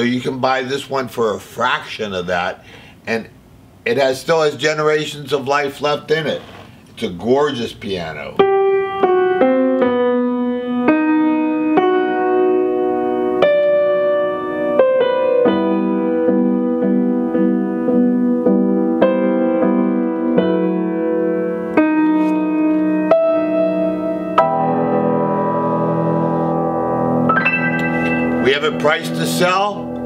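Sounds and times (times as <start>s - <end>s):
piano chords: 8.1s - 30.0s.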